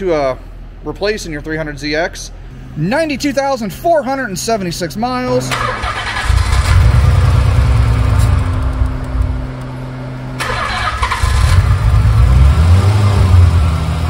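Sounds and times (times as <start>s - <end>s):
car engine idling: 4.7s - 14.0s
click: 8.2s - 9.7s.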